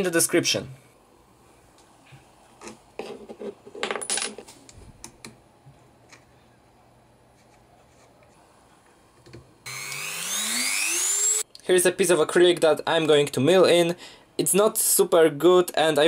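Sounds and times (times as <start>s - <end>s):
rotary tool spinning up: 9.7s - 11.4s.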